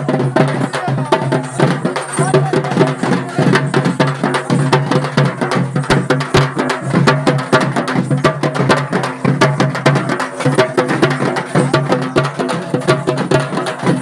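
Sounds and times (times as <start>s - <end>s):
frame drums beaten with sticks: 0.0s - 14.0s.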